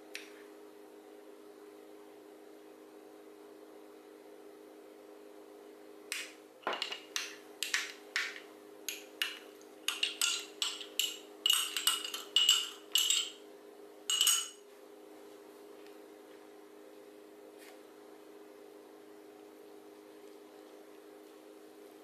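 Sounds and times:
spoon clinking against glass jar: 8.9 - 13.4, 14.1 - 14.6.

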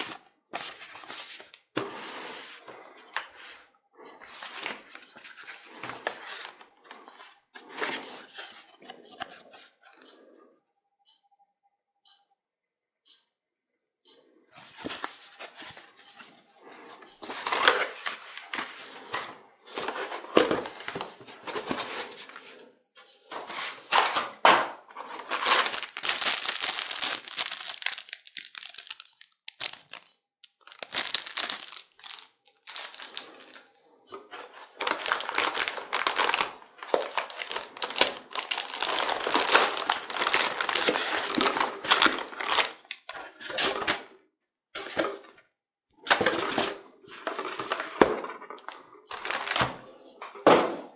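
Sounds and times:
plastic packaging crinkling: 25.0 - 44.1, 48.6 - 49.8.

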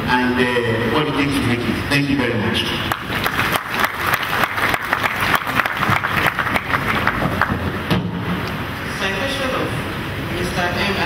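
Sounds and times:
audience applauding: 2.9 - 7.8.

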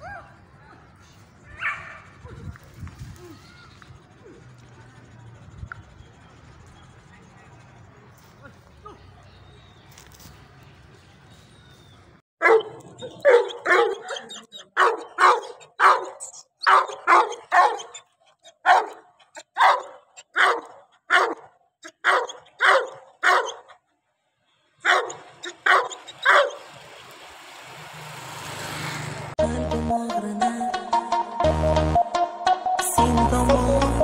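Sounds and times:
dog barking: 1.6 - 2.1, 12.4 - 23.8, 24.8 - 26.6.

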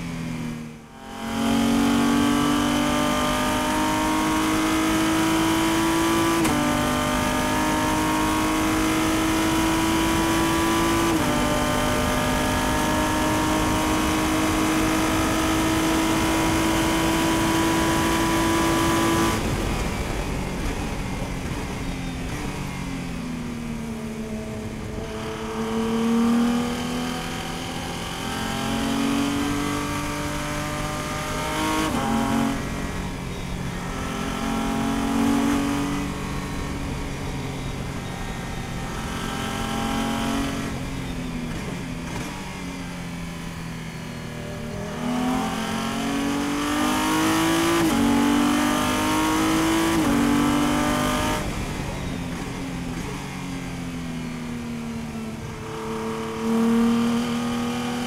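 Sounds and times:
race car engine accelerating: 1.1 - 20.0, 44.6 - 53.3.

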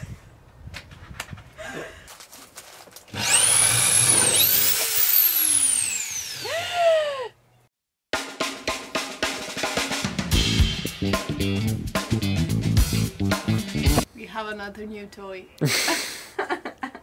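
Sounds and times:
power tool motor whine: 3.1 - 6.6.

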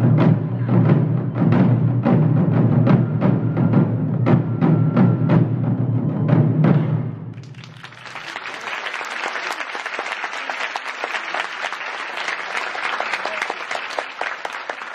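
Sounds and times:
taiko drum ringing: 0.0 - 7.4
audience applauding: 7.4 - 14.9.

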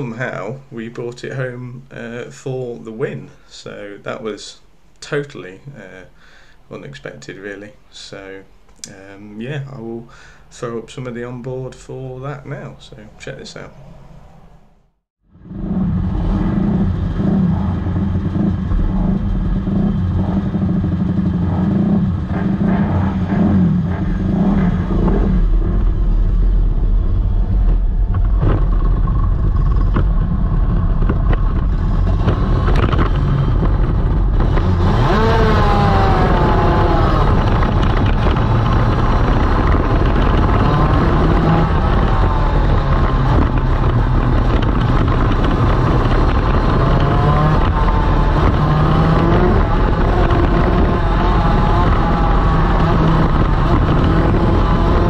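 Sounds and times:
two-stroke kart engine revving: 15.3 - 55.0.

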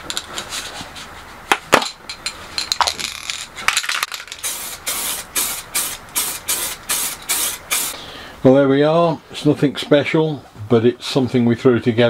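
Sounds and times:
spray can ball clinking: 2.6 - 8.0
spray can hissing: 4.2 - 8.0.

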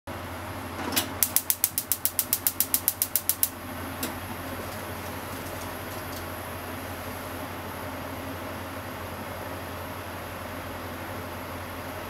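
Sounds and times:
spark igniter clicking: 1.0 - 6.3.

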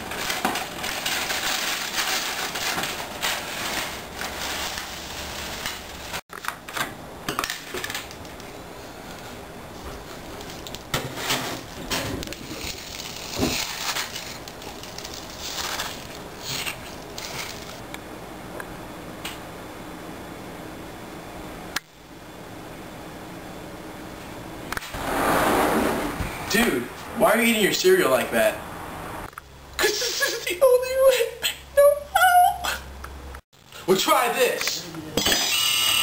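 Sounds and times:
cereal pouring rattle: 0.0 - 6.2, 12.4 - 17.8.

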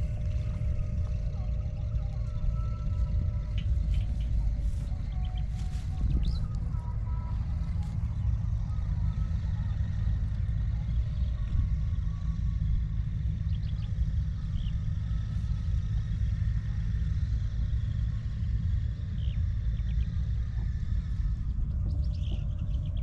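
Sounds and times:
faint high bird chirps: 0.0 - 16.2
wind buffeting microphone: 0.0 - 23.0.

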